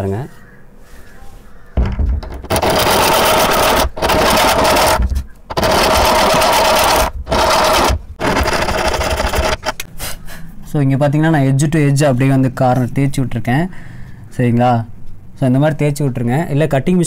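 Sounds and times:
hand file rasping on steel: 2.3s - 9.9s.

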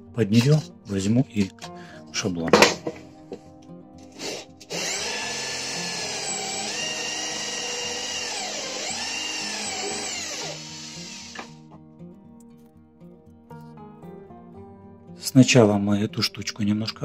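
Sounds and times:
electric drill with hole saw: 4.2s - 11.6s.

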